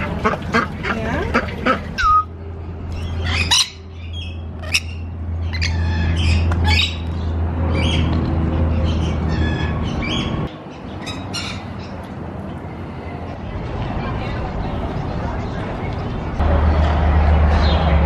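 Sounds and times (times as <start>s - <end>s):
ducks quacking: 0.0s - 2.3s
lorikeets squawking: 0.2s - 12.0s.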